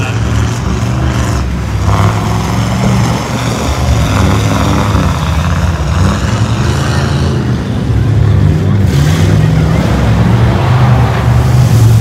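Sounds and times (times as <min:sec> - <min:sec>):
truck engine running hard: 0:00.0 - 0:12.0
mud and water spraying: 0:08.8 - 0:12.0.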